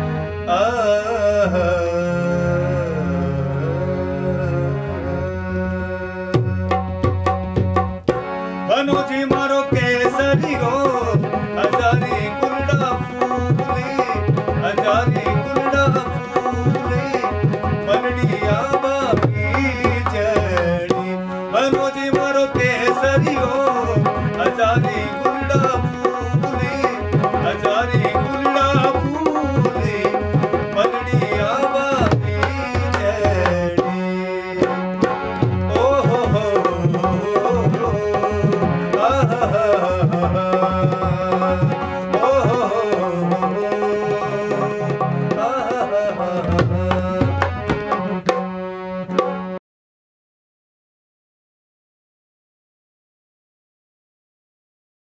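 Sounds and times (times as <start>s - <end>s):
harmonium: 0.0s - 49.6s.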